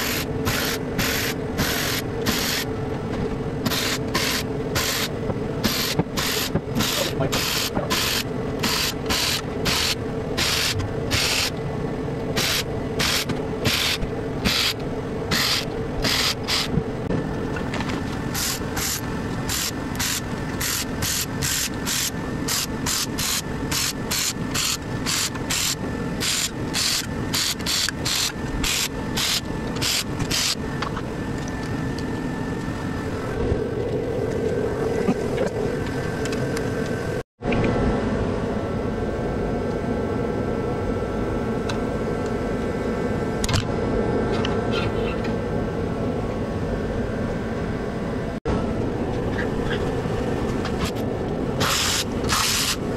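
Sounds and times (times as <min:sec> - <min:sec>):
cordless electric ratchet bursts: 0:03.7 - 0:11.5, 0:12.4 - 0:16.7, 0:18.3 - 0:30.6.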